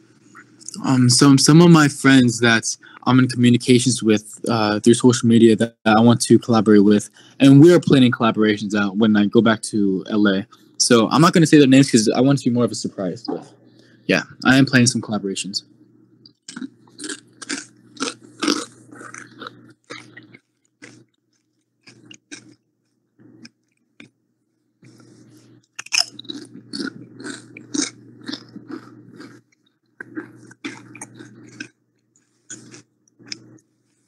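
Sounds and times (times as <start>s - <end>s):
person chewing crunchy food: 16.3s - 24.2s, 24.8s - 34.0s.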